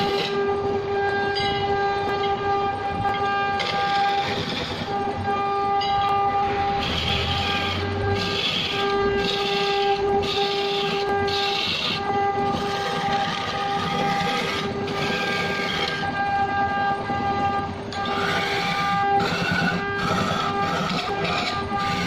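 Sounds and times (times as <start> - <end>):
turning tool rasping on wood: 0.0 - 0.4, 3.6 - 4.9, 6.8 - 16.1, 18.0 - 22.0
wood lathe humming: 0.0 - 1.1, 3.2 - 5.4, 6.7 - 16.3, 17.4 - 22.0.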